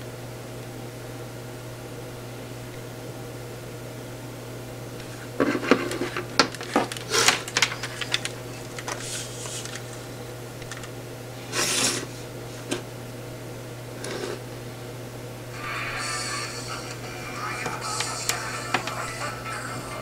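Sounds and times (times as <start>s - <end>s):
low electrical hum: 0.0s - 20.0s
short rubbing scrape: 11.5s - 12.2s, 14.0s - 14.4s.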